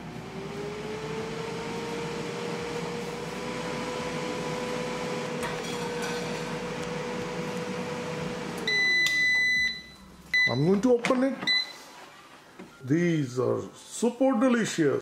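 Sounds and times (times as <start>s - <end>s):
air fryer fan whirring: 0.0s - 9.8s.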